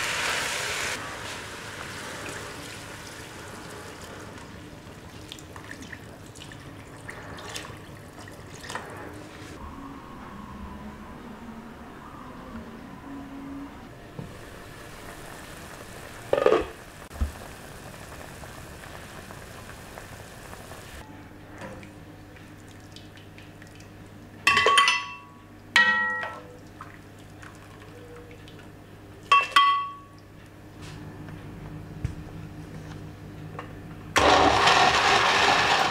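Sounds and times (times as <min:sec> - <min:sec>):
soup simmering: 0:00.0 - 0:08.6, 0:14.2 - 0:21.1.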